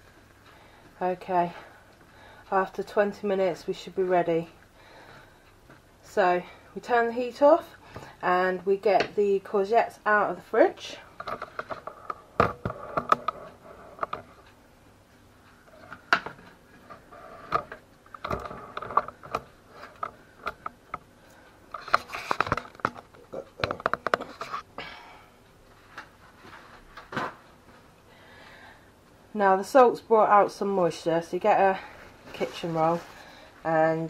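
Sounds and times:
baking tray clicks and knocks: 0:21.9 - 0:24.3.

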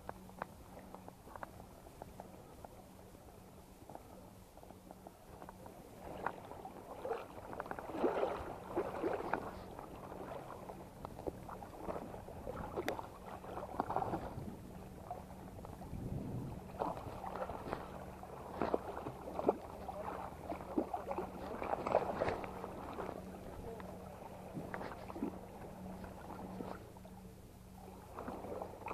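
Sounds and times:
water splashing from thrashing fish: 0:06.2 - 0:10.6, 0:16.7 - 0:23.3.

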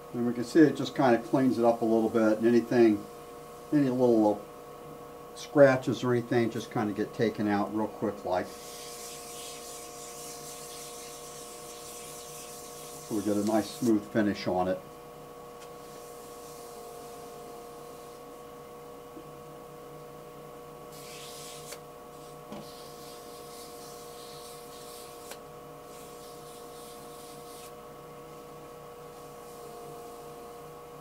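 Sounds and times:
lathe motor hum and whine: 0:00.0 - 0:31.0
sandpaper rubbing on spinning wood: 0:08.4 - 0:14.1, 0:15.8 - 0:18.2, 0:20.9 - 0:27.8, 0:29.1 - 0:30.5.

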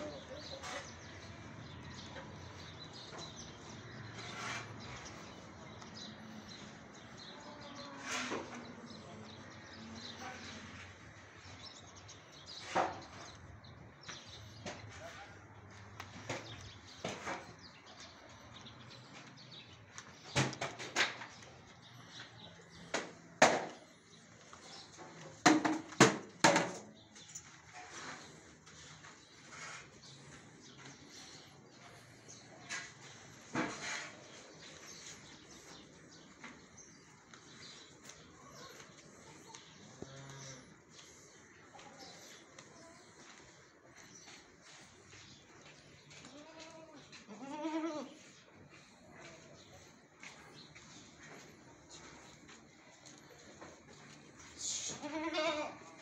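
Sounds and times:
knocks and clatters: 0:20.2 - 0:21.6, 0:25.0 - 0:27.0.

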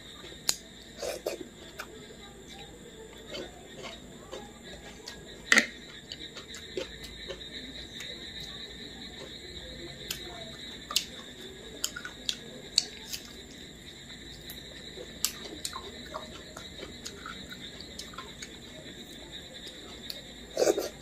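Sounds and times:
chewing: 0:00.1 - 0:13.6, 0:14.3 - 0:21.0
mouth clicks and lip smacks: 0:00.4 - 0:00.6.

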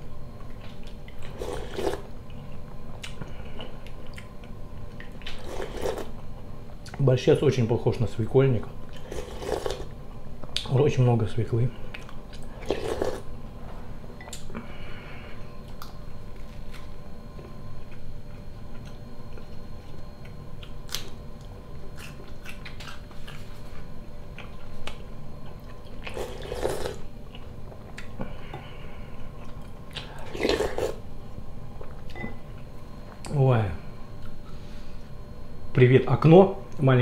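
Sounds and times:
person chewing: 0:00.6 - 0:06.2, 0:08.9 - 0:09.9, 0:11.9 - 0:13.3, 0:20.6 - 0:23.6, 0:24.3 - 0:28.3, 0:29.2 - 0:31.0
slurps from a spoon: 0:12.6 - 0:13.2.

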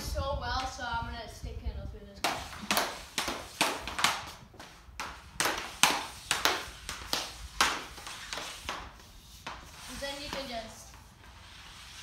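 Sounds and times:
hockey stick tapping puck: 0:00.5 - 0:00.8, 0:02.2 - 0:11.0.

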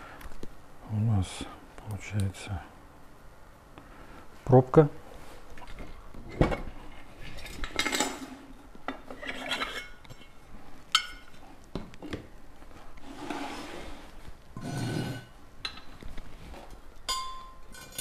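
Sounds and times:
metal scraping against metal: 0:14.6 - 0:15.4.

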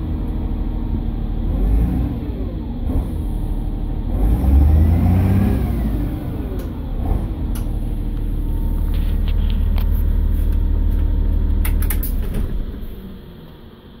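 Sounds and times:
bus diesel engine idling: 0:05.9 - 0:12.1.

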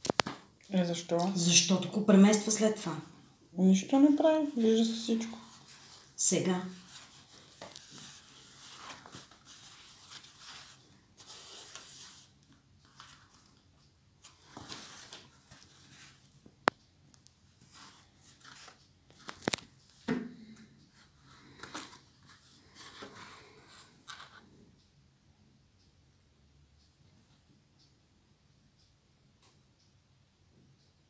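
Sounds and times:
hat rustling and scraping: 0:05.3 - 0:06.2, 0:06.8 - 0:13.6, 0:14.2 - 0:16.3, 0:17.6 - 0:20.0, 0:20.9 - 0:24.4.

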